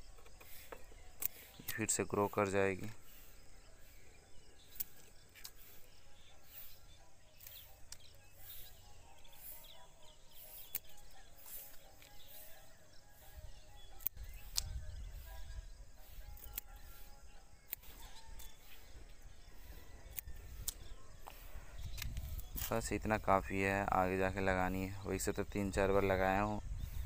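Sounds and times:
birds chirping: 0:00.0 - 0:27.0
outdoor ambience: 0:00.0 - 0:27.0
scissors snipping stems: 0:00.3 - 0:02.0, 0:04.6 - 0:08.7, 0:09.3 - 0:18.9, 0:19.6 - 0:22.9.

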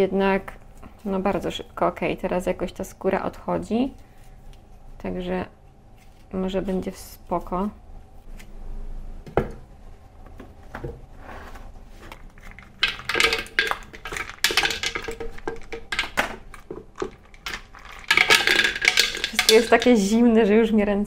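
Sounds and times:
kitchenware clicking and clinking: 0:12.1 - 0:20.2.

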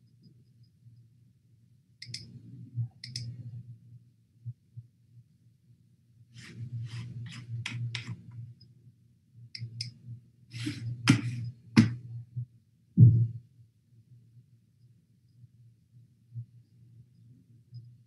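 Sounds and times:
low steady hum: 0:00.0 - 0:18.0
computer clicks: 0:02.0 - 0:02.3, 0:03.0 - 0:03.3.

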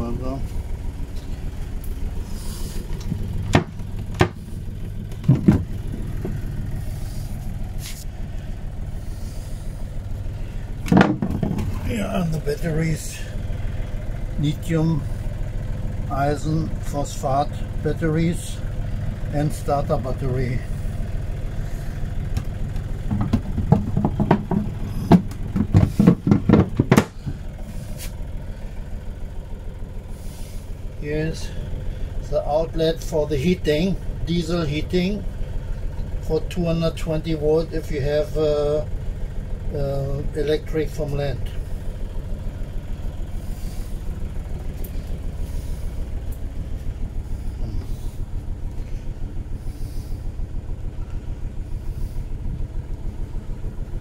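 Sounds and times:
boat motor idling: 0:00.0 - 0:54.0
sharp knocks of cabin fittings: 0:02.9 - 0:06.6, 0:10.8 - 0:11.9, 0:22.3 - 0:27.4
lid knocking and clattering: 0:23.1 - 0:27.1.

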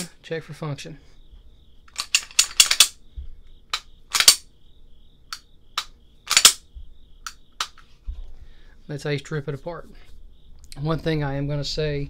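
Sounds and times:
pistol slide racking: 0:01.9 - 0:03.0, 0:03.7 - 0:04.4, 0:05.3 - 0:06.6
trigger dry-fire clicks: 0:01.9 - 0:03.0, 0:03.7 - 0:04.5, 0:05.3 - 0:07.8.

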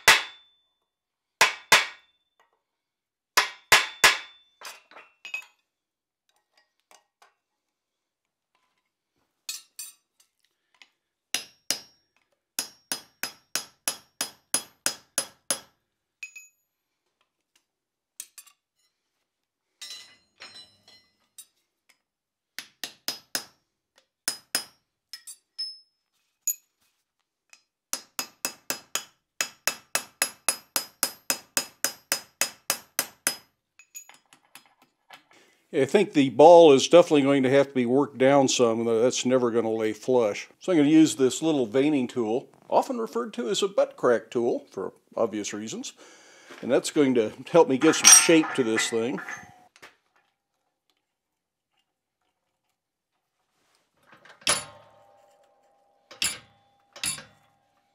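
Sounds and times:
hammer striking steel on anvil: 0:00.0 - 0:00.5, 0:01.4 - 0:02.1, 0:03.4 - 0:04.5, 0:11.4 - 0:12.0, 0:12.6 - 0:15.7, 0:22.8 - 0:23.6, 0:24.3 - 0:25.8, 0:28.0 - 0:33.5, 0:47.8 - 0:49.6.

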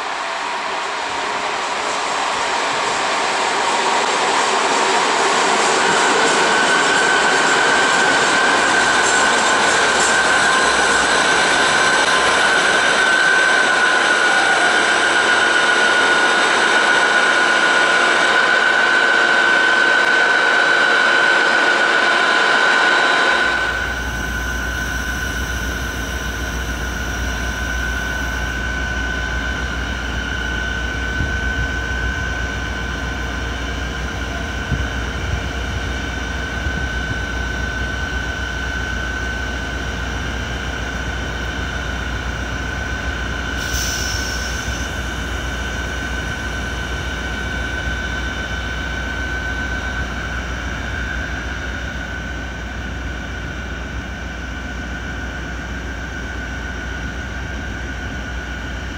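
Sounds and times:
diesel locomotive idling: 0:23.4 - 0:56.0
brief hiss: 0:43.6 - 0:45.0.

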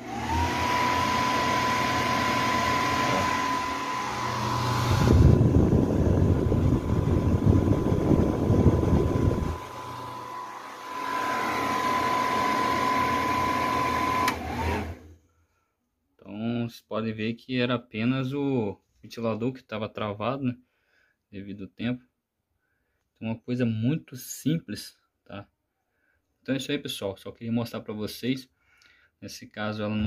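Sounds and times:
blower fan whining: 0:00.0 - 0:15.2.

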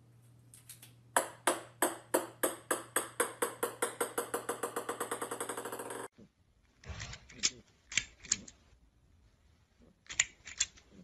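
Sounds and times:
ping-pong ball bouncing on floor: 0:01.2 - 0:06.1.

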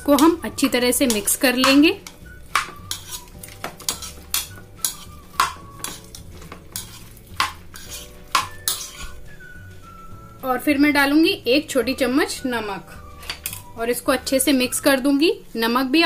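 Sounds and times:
metal spoon scraping plastic bowl: 0:01.0 - 0:09.2.

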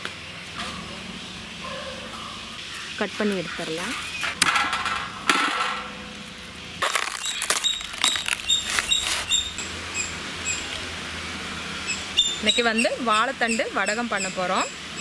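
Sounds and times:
sharp snaps and cracks: 0:06.8 - 0:09.3
fibrous sheaths tearing: 0:06.8 - 0:09.6.

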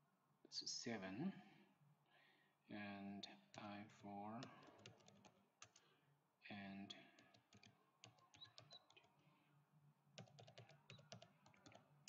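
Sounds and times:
computer keyboard typing: 0:04.4 - 0:05.8, 0:07.2 - 0:09.2, 0:10.2 - 0:11.9.

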